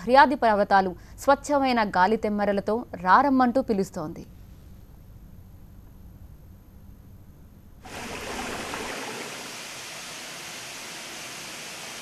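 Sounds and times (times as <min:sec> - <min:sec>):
stream and waterfall rushing: 0:07.9 - 0:12.0.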